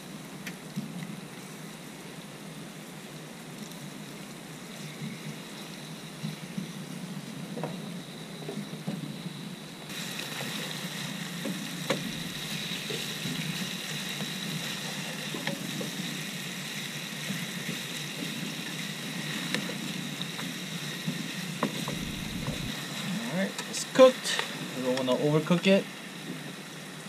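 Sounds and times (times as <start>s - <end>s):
fish sizzling in a frying pan: 9.9s - 22.4s.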